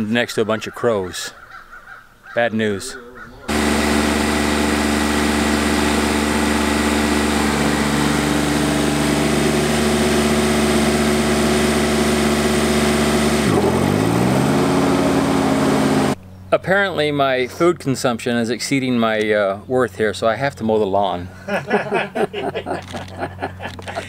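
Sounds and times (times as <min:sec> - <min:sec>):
riding mower engine running: 0:03.5 - 0:17.6, 0:21.6 - 0:24.0.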